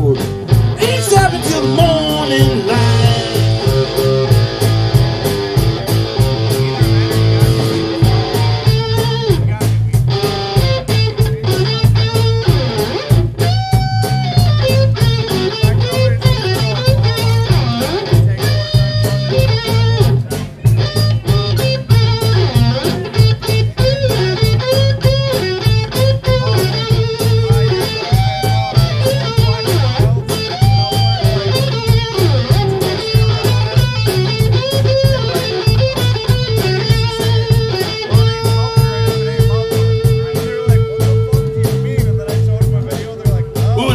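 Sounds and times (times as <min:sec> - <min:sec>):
bass guitar: 0:00.0 - 0:43.9
drum beat: 0:00.0 - 0:43.9
electric guitar lead lines: 0:00.0 - 0:43.9.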